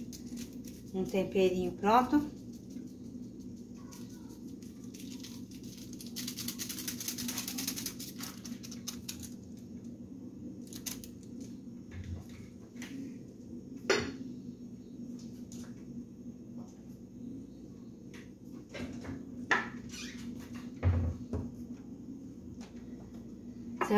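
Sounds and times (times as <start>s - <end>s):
paper sachet rattling rustle: 0.0s - 9.7s, 10.6s - 11.5s
low steady hum: 0.0s - 23.9s.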